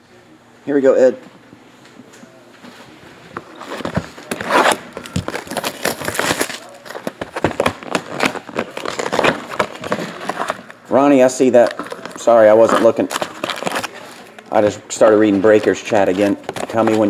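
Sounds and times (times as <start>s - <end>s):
plastic shrink wrap crackling: 3.6s - 10.8s, 11.5s - 14.5s.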